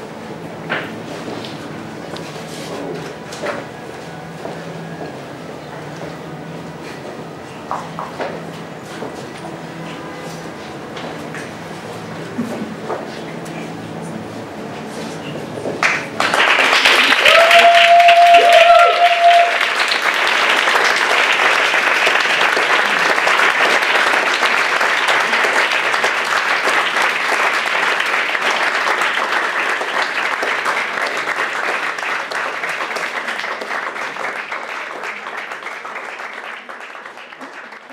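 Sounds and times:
audience applauding: 15.8s - 37.9s.

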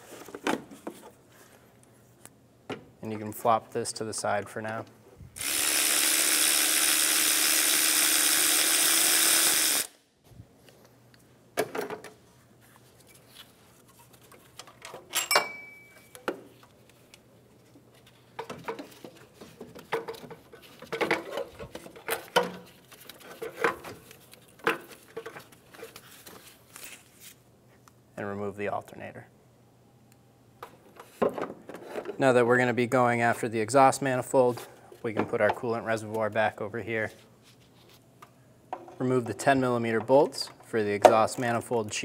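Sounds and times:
handheld power tool running: 5.4s - 10.0s
metal clinks and knocks: 14.8s - 16.3s.

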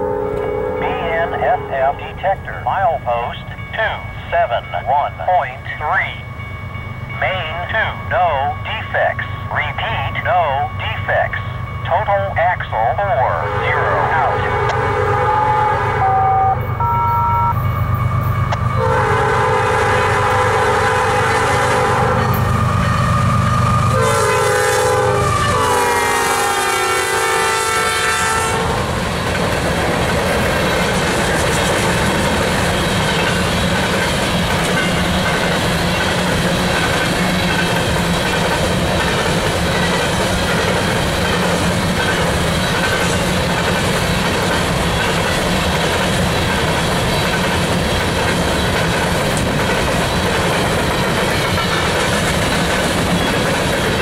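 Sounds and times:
locomotive air horn: 0.0s - 2.0s, 13.3s - 17.6s, 18.8s - 22.4s, 23.9s - 28.9s
train cars rolling by: 0.0s - 54.0s.

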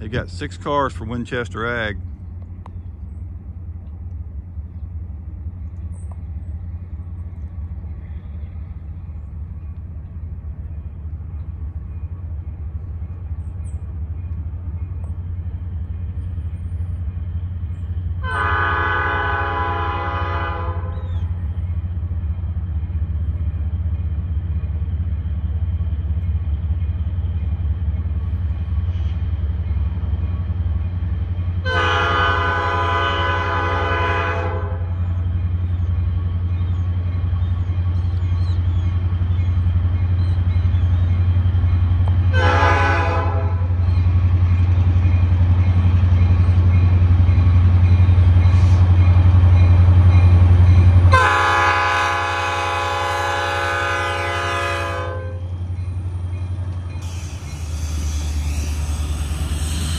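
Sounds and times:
diesel locomotive engine rumble: 0.0s - 59.9s
locomotive horn blast: 18.2s - 21.1s, 31.6s - 35.0s, 42.3s - 43.8s, 51.1s - 55.6s.

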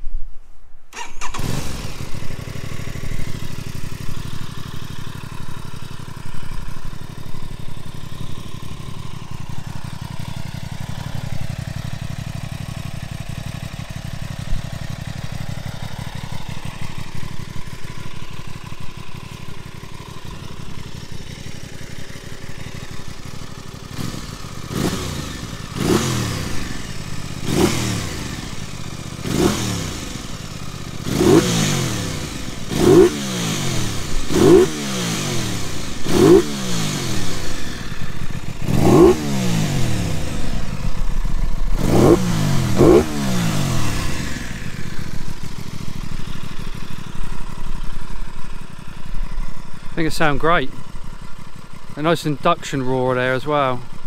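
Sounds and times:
motorcycle engine idling: 0.9s - 54.0s
engine revving throttle blips: 23.9s - 45.7s.

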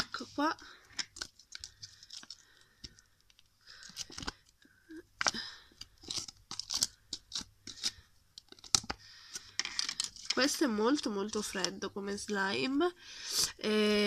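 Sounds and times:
plastic tubs handled: 0.0s - 11.8s
sticky slime crackling: 5.1s - 9.0s.

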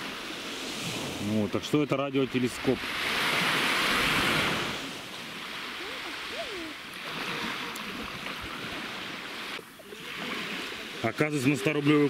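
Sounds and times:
small waves washing on sand: 0.0s - 12.0s.

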